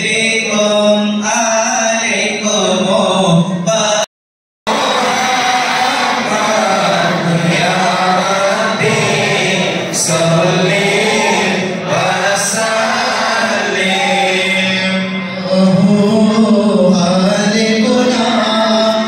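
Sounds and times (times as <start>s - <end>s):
men chanting devotional verses: 0.0s - 4.1s, 4.7s - 19.0s.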